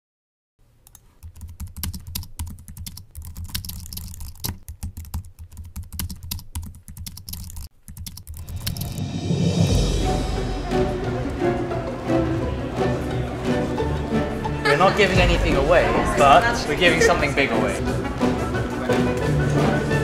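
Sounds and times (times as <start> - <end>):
computer keyboard typing: 0.9 - 9.0.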